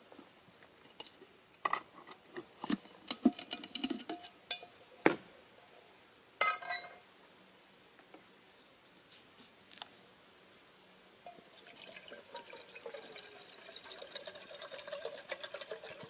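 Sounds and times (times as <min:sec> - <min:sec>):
metal cookware clinking on wood: 0:03.1 - 0:04.8, 0:06.4 - 0:07.0
ringing metal clank of pot: 0:06.4 - 0:07.0.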